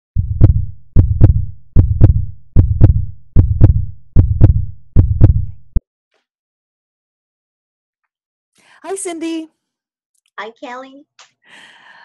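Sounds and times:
heartbeat thumps: 0.2s - 5.8s.

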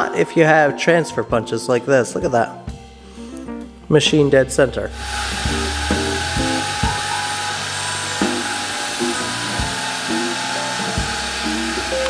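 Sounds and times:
background music: 0.0s - 12.0s
milling machine cutting brass: 5.0s - 12.0s.

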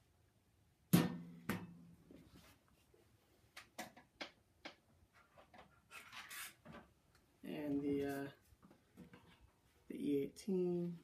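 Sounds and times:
soft rustling: 2.1s - 3.6s.

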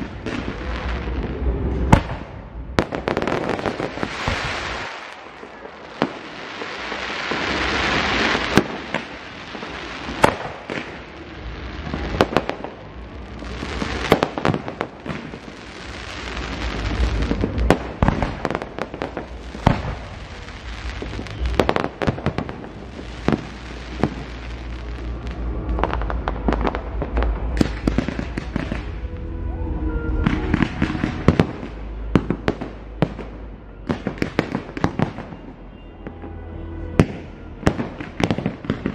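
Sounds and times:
low rumble: 0.0s - 3.1s, 15.8s - 34.2s
fireworks bangs: 0.0s - 36.4s, 37.0s - 38.9s.

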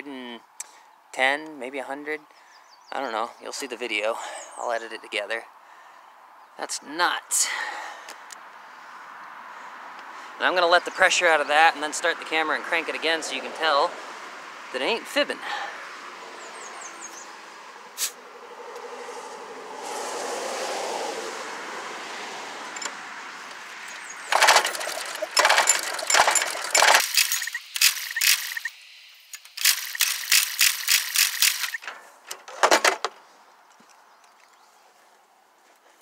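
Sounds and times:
engine starter cranking: 23.9s - 28.7s, 29.3s - 32.8s.

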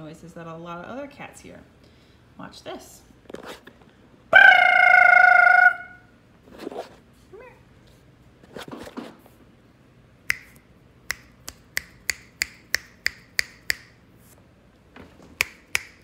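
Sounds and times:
fingers snapping: 10.3s - 14.0s, 15.4s - 16.0s.

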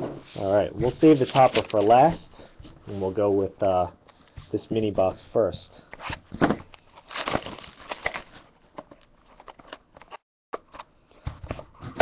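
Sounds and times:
cardboard box crackling and tearing: 6.9s - 8.4s.

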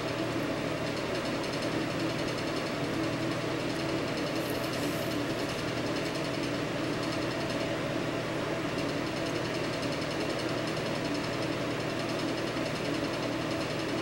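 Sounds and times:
small motor humming: 3.7s - 5.9s.

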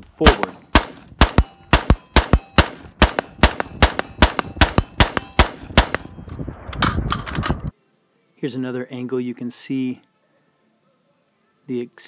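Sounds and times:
rifle shots: 0.2s - 7.5s.

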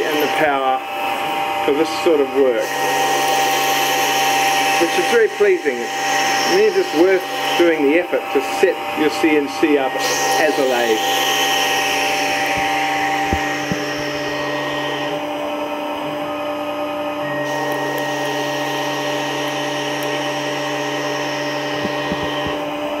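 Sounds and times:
milling machine motor hum: 0.0s - 23.0s
tool cutting metal hiss: 21.7s - 22.6s.

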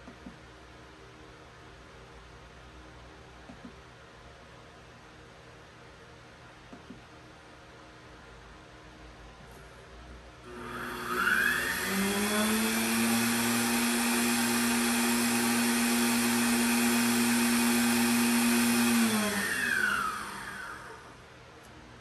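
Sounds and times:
mill spindle motor whine: 10.4s - 21.2s.

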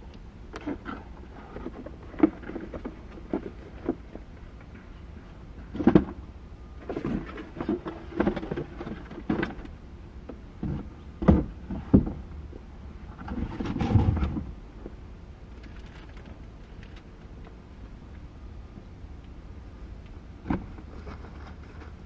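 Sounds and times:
steady low rumble: 0.0s - 22.0s
knocks and rustles around a car: 0.5s - 6.2s, 6.8s - 12.5s, 20.4s - 22.0s.

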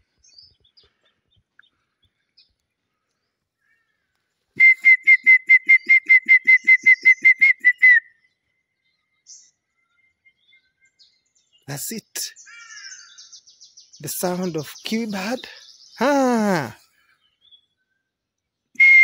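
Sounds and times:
eagle-like whistled call: 4.6s - 8.2s, 18.8s - 19.0s.

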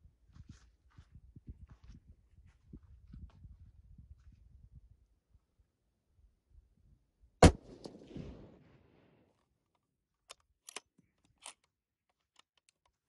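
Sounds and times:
rifle shot echoing: 7.4s - 9.2s
rifle bolt metallic clicks: 10.2s - 13.0s.

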